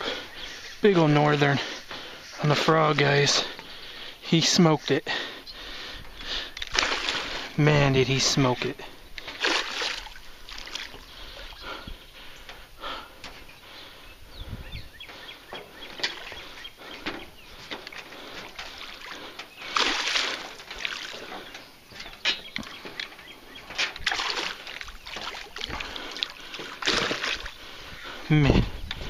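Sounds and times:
fish thrashing and splashing: 6.5 - 7.6, 8.8 - 12.3, 15.8 - 28.3.

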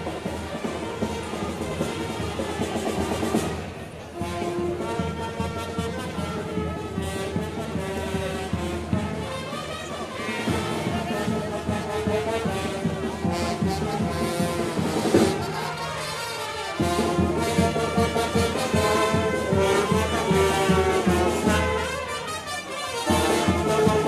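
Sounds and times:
brass band playing: 0.0 - 24.0
steady drum beat: 10.5 - 15.7, 16.8 - 21.9, 23.1 - 24.0.

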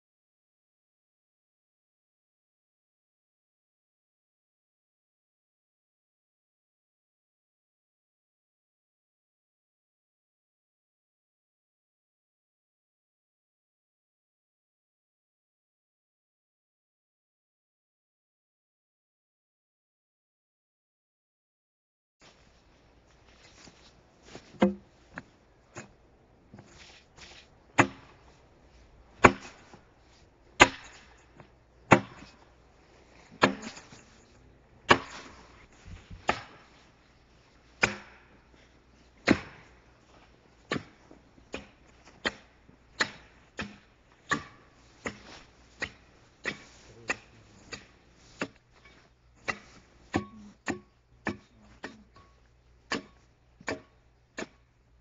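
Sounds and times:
axe chopping into a log: 24.6 - 24.9, 27.8 - 28.2, 29.2 - 29.8, 30.6 - 31.2, 31.9 - 32.4, 33.4 - 34.0, 34.9 - 35.5, 36.1 - 36.7, 37.8 - 38.4, 39.2 - 39.8, 40.7 - 48.6, 49.4 - 52.3, 52.9 - 54.6.

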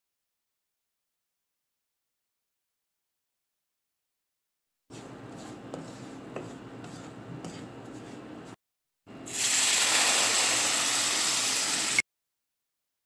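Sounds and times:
wooden spatula scraping pan: 4.9 - 8.6
water hissing in hot pan: 9.3 - 12.0
water pouring: 9.3 - 12.0.

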